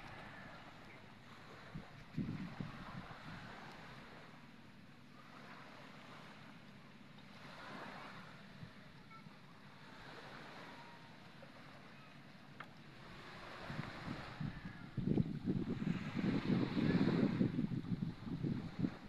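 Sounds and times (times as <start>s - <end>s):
wind and sea hiss: 0.0s - 19.0s.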